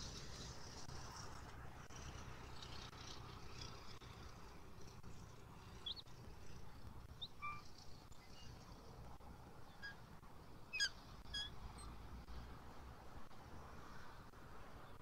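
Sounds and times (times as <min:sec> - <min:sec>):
high bird chirps: 0:07.2 - 0:08.5, 0:10.7 - 0:11.9.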